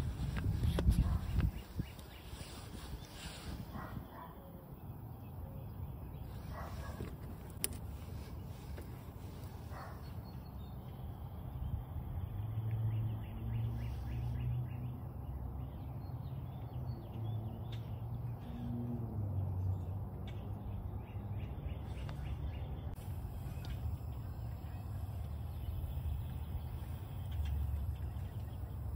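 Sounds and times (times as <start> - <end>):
steady low rumble: 0.0 - 2.1, 19.7 - 28.9
faint birds calling: 0.2 - 28.9.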